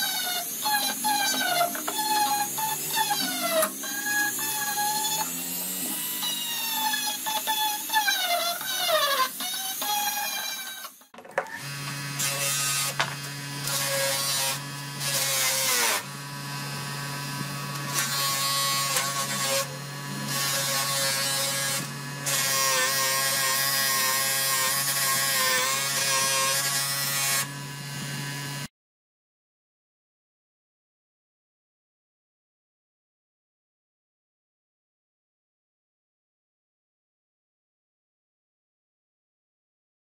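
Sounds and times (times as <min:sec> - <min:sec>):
metal rasping on buffing wheel: 0:00.0 - 0:11.0
bench grinder motor hum: 0:00.0 - 0:28.7.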